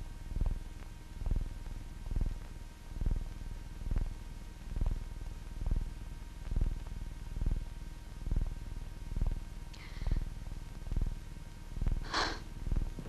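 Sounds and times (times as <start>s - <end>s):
slow low drum beat: 1.2s - 1.5s, 2.1s - 5.0s.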